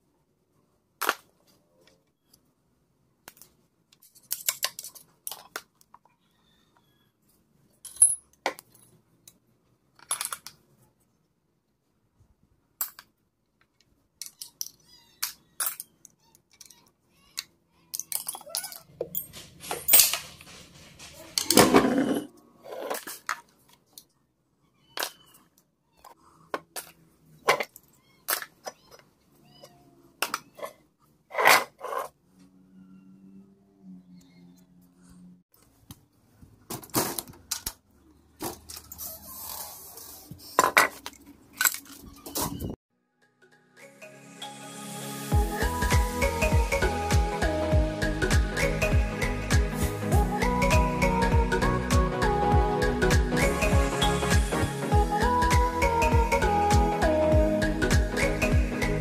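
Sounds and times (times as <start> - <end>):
metal parts clinking: 17.9 - 21.6, 40.9 - 42.2.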